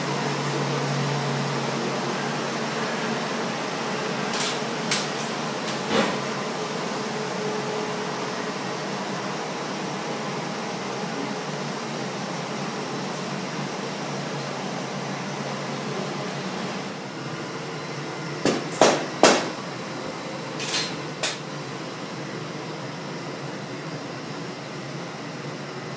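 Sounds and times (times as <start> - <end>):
furnace rushing: 4.0 - 6.5, 18.5 - 19.8, 20.5 - 21.5.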